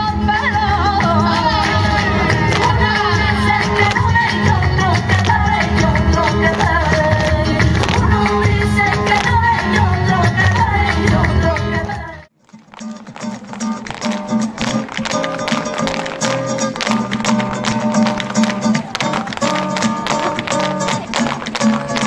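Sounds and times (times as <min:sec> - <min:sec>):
flamenco guitar music: 0:00.0 - 0:22.0
sharp percussive taps: 0:02.5 - 0:09.8, 0:12.5 - 0:22.0.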